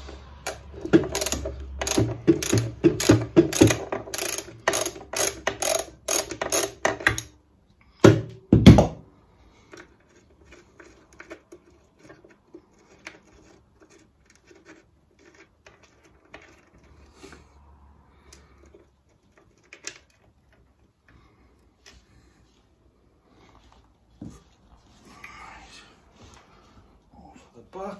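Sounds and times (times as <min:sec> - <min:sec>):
tools and metal parts clicking: 0:00.4 - 0:07.3
socket ratchet clicking: 0:00.4 - 0:07.4.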